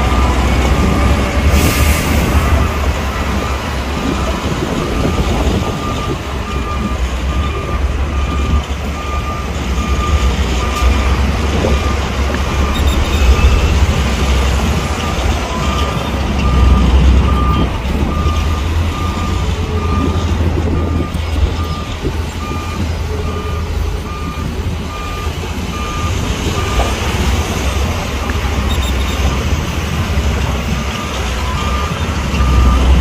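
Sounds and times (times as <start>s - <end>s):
reversing alarm beeping: 0.0s - 29.8s, 30.8s - 33.0s
bulldozer diesel engine rumbling: 0.0s - 33.0s.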